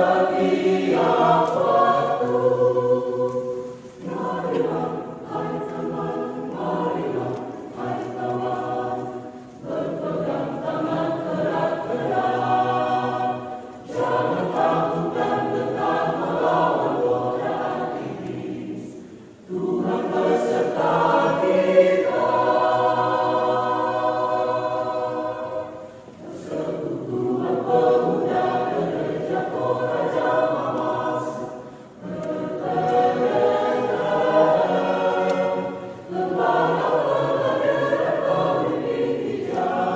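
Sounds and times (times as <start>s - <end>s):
mixed choir singing: 0.0s - 39.9s.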